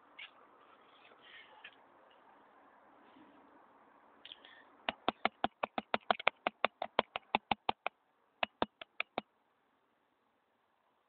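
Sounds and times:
sharp clicks or taps: 4.9 - 9.2.

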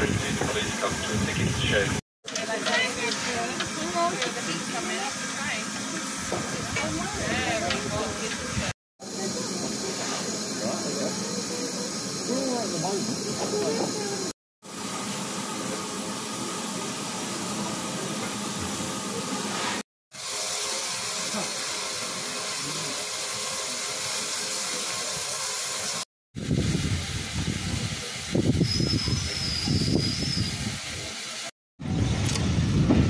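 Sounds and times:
wind buffeting microphone: 0.0 - 2.0, 26.4 - 31.1, 31.8 - 33.0
steam hissing from locomotive: 0.0 - 33.0
faint high wavering whistle: 28.6 - 30.6.

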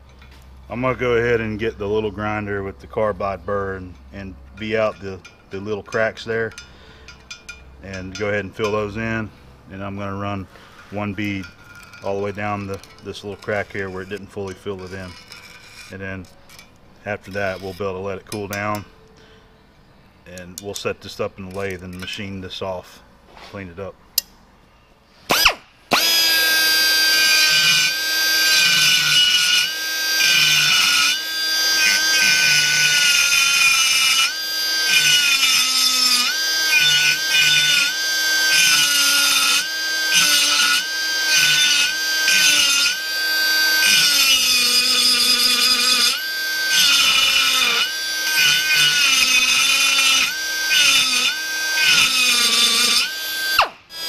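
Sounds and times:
die grinder high whine: 25.3 - 54.0.

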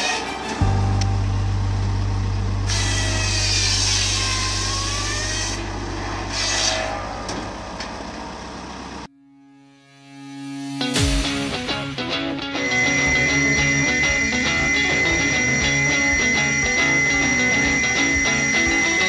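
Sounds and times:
circular saw humming: 0.0 - 9.1, 12.6 - 19.0
saw blade cutting log: 2.7 - 7.1.

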